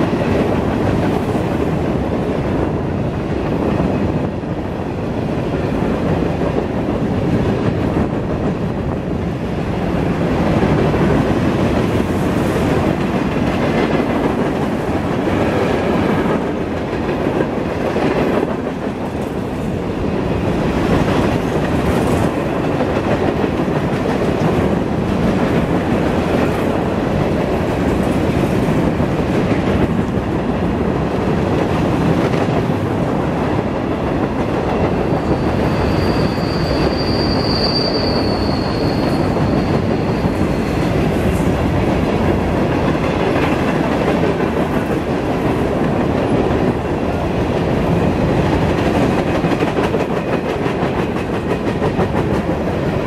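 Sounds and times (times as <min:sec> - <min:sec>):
freight train wheels on rail: 0:00.0 - 0:53.0.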